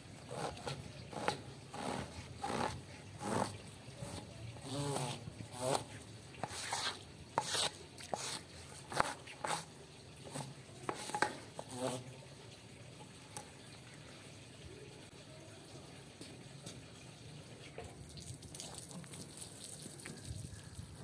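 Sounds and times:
squeegee scraping wet rug: 0.2s - 12.1s.

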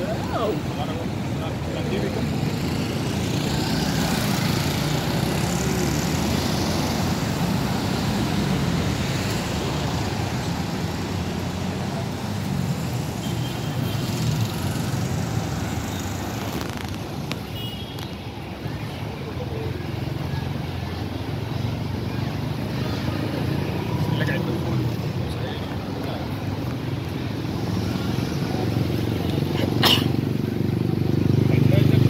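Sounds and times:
cars driving past: 0.0s - 17.5s, 18.6s - 32.0s.

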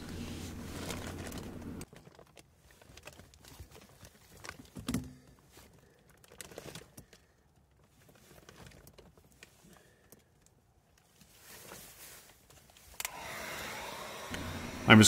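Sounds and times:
steady hum: 0.0s - 1.8s, 14.1s - 15.0s
light clicks and rustles: 0.0s - 13.1s.

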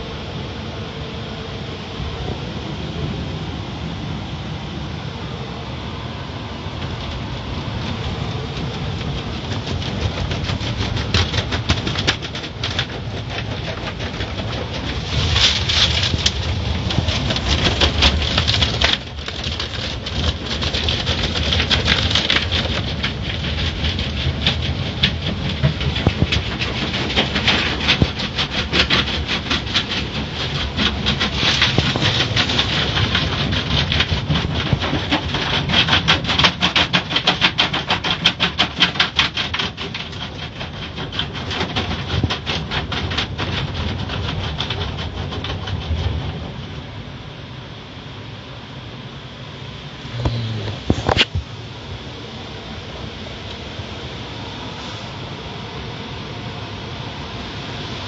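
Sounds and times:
steady rushing noise: 0.0s - 58.0s
car wash brushes slapping: 6.8s - 46.0s, 50.1s - 51.5s.

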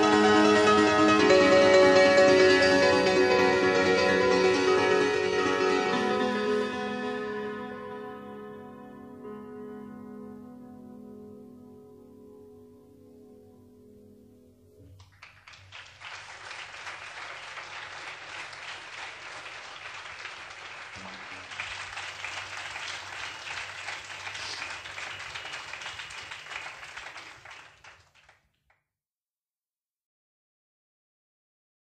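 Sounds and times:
audience applause: 15.0s - 28.5s.

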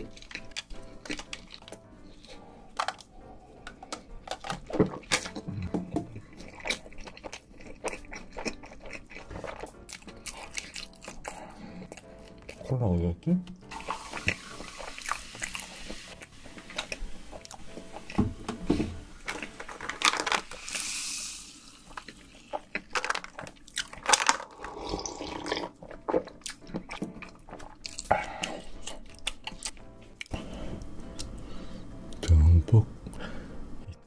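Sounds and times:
wet chewing and smacking: 0.0s - 12.7s, 13.5s - 18.3s, 21.8s - 31.3s
hiss: 20.6s - 21.8s.

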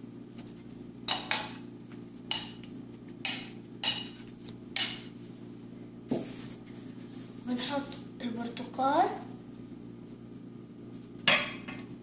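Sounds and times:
metal spoon clinking against bowls: 3.3s - 4.2s.

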